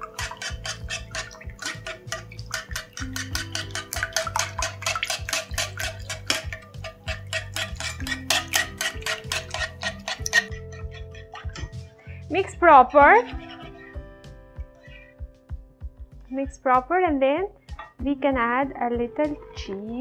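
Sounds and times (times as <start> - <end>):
whisk clicking against pan: 0.0 - 11.8.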